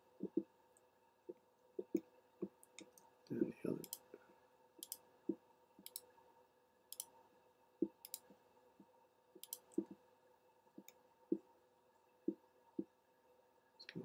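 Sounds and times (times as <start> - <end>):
computer mouse clicking: 3.8 - 4.1, 4.8 - 5.0, 5.8 - 6.1, 6.9 - 7.2, 7.8 - 8.4, 9.4 - 10.0.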